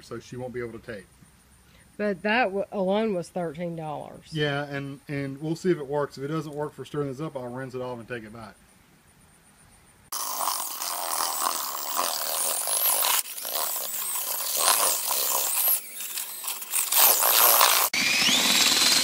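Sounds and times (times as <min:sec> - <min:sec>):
drill mixer churning grout: 0:10.1 - 0:19.0
drill motor whine: 0:10.2 - 0:19.0.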